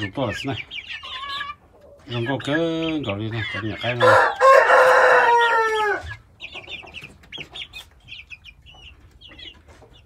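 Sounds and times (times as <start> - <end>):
chicks peeping and clucking: 0.0 - 10.0
rooster crowing: 4.0 - 6.1.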